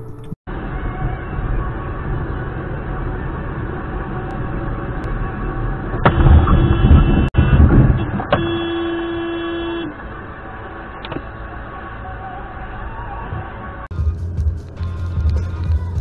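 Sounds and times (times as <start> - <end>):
road and cabin noise: 0.0 - 16.0
car horn blast: 6.0 - 10.0.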